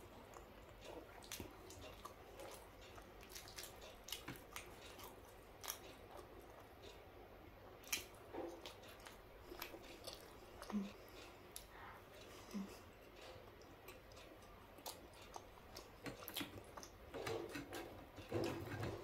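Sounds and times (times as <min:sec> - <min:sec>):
wet chewing and mouth smacks: 0:00.1 - 0:07.0, 0:07.8 - 0:18.9
fingers squelching food: 0:00.2 - 0:07.1.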